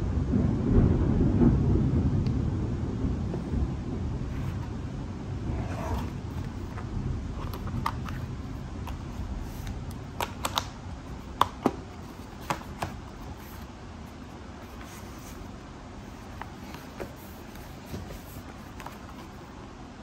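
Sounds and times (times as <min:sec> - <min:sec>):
steady low rumble: 0:00.0 - 0:20.0
plastic clicks and taps: 0:10.2 - 0:10.7.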